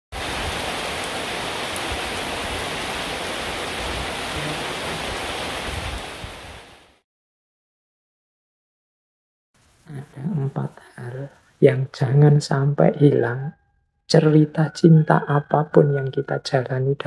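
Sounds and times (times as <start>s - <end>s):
rain falling on foliage: 0.1s - 7.0s, 9.6s - 11.6s.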